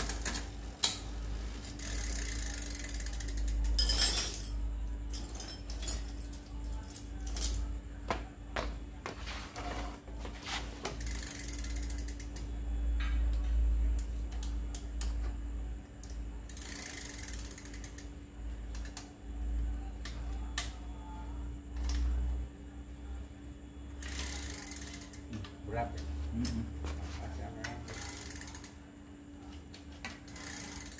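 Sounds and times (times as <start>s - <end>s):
bike freewheel ratcheting: 0.0s - 3.9s, 10.7s - 12.5s, 15.9s - 19.1s, 24.0s - 26.7s, 27.5s - 28.8s, 30.0s - 30.9s
chain and derailleur clicks: 1.7s - 7.6s, 10.9s - 12.5s, 16.0s - 18.1s, 24.0s - 25.3s, 27.6s - 28.8s, 30.1s - 30.9s.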